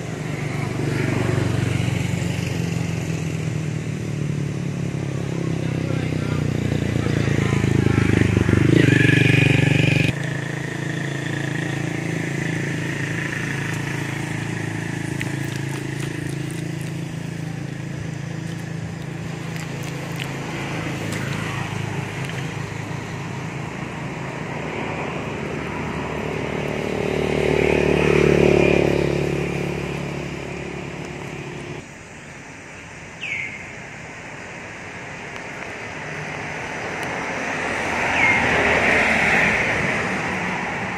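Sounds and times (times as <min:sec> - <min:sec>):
engine humming: 0:00.0 - 0:32.6.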